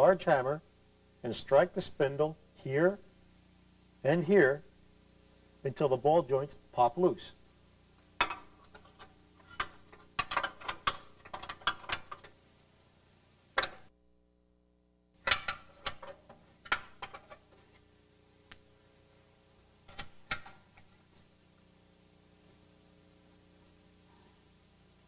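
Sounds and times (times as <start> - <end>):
wrench clicking against bolts: 19.9 - 20.9.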